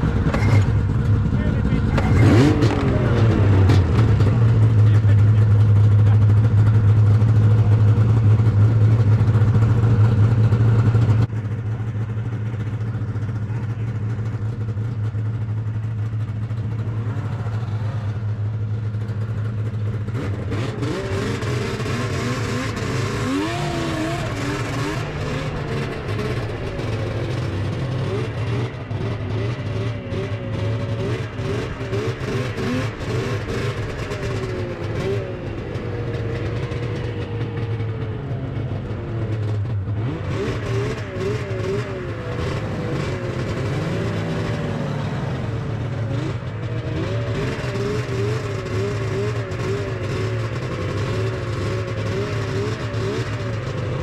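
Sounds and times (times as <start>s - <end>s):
snowmobile engine running: 0.0s - 54.0s.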